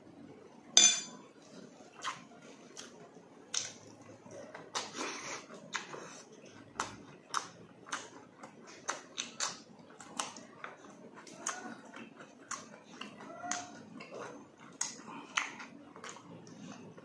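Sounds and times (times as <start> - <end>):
chewing: 1.9 - 17.0
wet lip smacks: 2.0 - 2.2.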